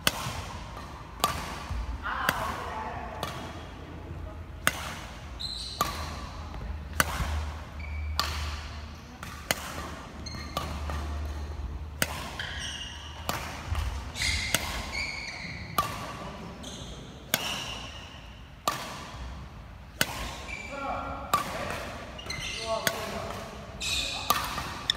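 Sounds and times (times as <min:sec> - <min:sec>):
rackets striking shuttlecock: 0:00.0 - 0:03.6, 0:04.6 - 0:20.5, 0:21.2 - 0:24.9
shoes squeaking on wooden floor: 0:05.4 - 0:05.8, 0:12.4 - 0:13.1, 0:14.2 - 0:15.7, 0:22.2 - 0:22.6.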